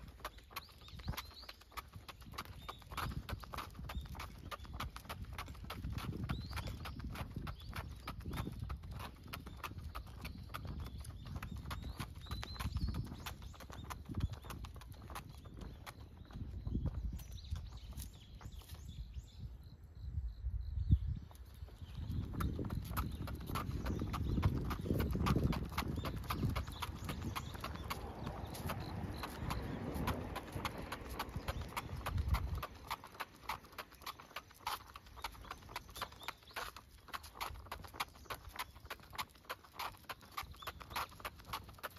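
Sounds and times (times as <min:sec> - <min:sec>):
dog boots tapping on concrete: 0:00.0 - 0:19.0, 0:21.3 - 0:41.9.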